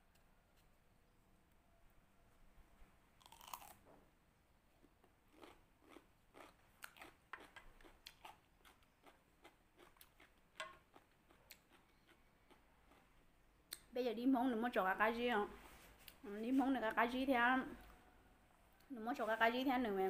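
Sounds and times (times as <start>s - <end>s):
crunching of cucumber chewing: 3.2s - 3.9s, 4.8s - 13.9s.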